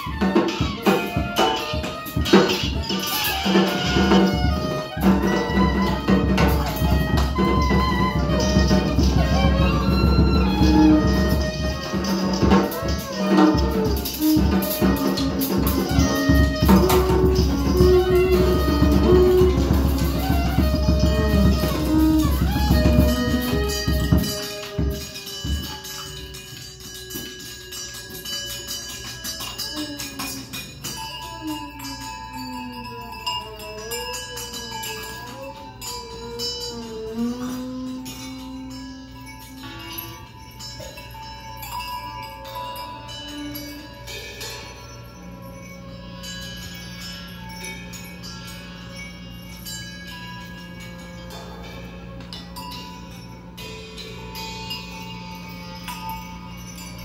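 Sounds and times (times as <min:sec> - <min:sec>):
drum kit: 0:00.0 - 0:26.4
bowed instrument sliding tones: 0:00.0 - 0:41.4.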